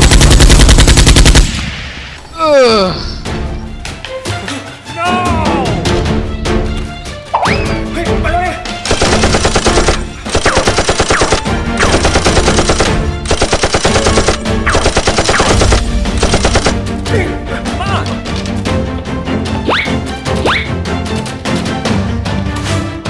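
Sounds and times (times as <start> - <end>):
machine-gun fire sound effect: 0.0 - 1.6, 8.9 - 16.8
background music: 0.0 - 23.0.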